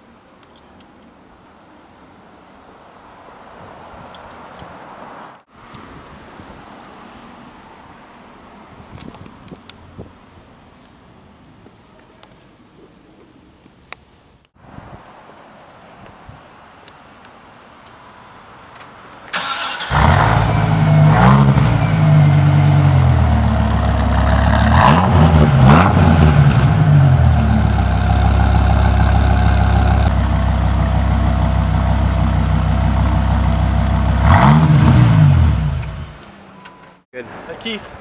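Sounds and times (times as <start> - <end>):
car engine starting: 19.3 - 36.3
car engine revving: 19.4 - 36.2
car engine idling: 19.9 - 36.2.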